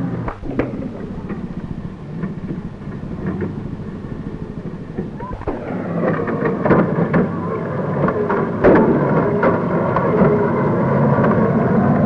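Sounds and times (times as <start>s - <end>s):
military vehicle engines rumbling: 0.0s - 12.0s.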